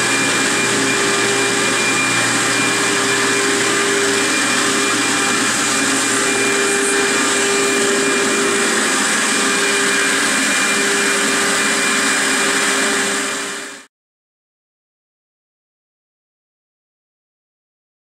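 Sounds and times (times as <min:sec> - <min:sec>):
vacuum pump rushing air: 0:00.0 - 0:13.9.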